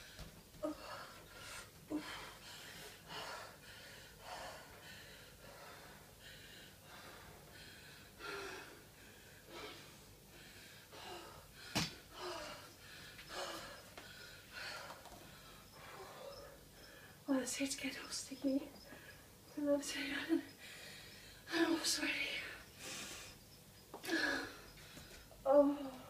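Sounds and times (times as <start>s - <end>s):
woman breathing heavily: 0.0s - 26.0s.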